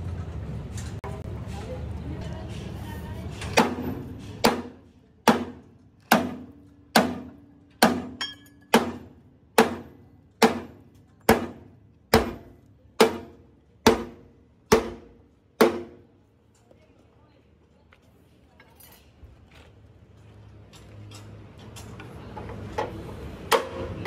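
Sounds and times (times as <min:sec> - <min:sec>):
hammer striking steel: 0:03.4 - 0:16.1, 0:23.4 - 0:24.0.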